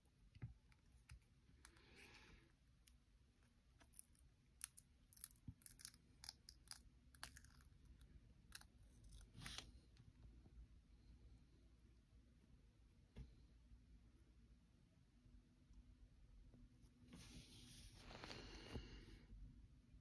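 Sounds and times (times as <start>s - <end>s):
soft rustles: 17.0s - 18.9s.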